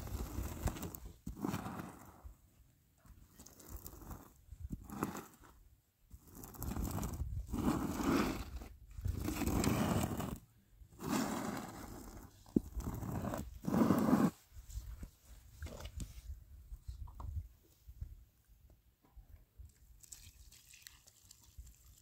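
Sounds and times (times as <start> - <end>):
squeegee scraping over concrete: 0.0 - 2.3, 3.4 - 5.5, 6.1 - 10.4, 11.0 - 14.4.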